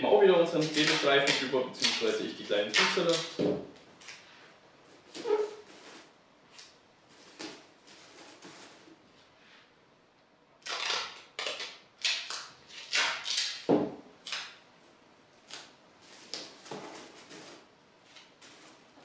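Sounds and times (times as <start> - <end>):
duct tape ripping: 0.6 - 3.4, 10.6 - 14.6.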